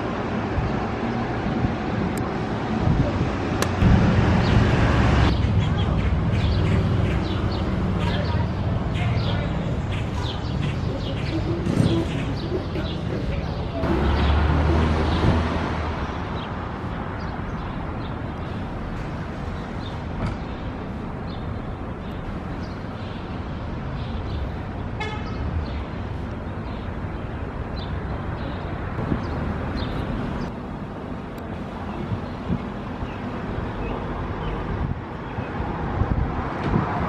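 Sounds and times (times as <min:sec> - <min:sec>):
street traffic noise: 0:00.0 - 0:37.0
car horn toot: 0:25.0 - 0:25.4.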